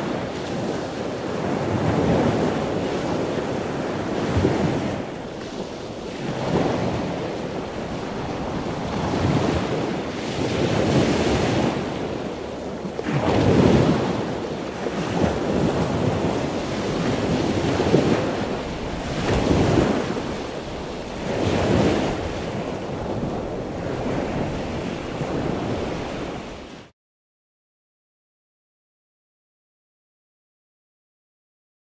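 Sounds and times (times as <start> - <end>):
wind noise: 0.0 - 26.8
sea waves washing in: 0.0 - 26.9.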